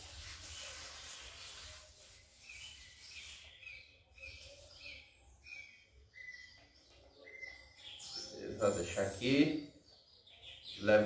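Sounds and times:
sprayer water jet hissing: 0.0 - 3.4
small bird chirping: 0.5 - 11.0.

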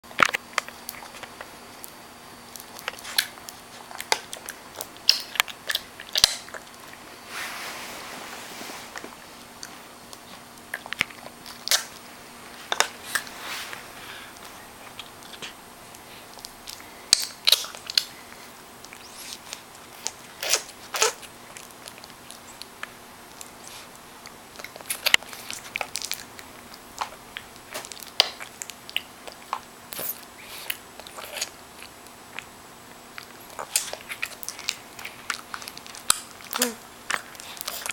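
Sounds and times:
baby gnawing teething ring: 2.4 - 7.0, 18.8 - 32.5.

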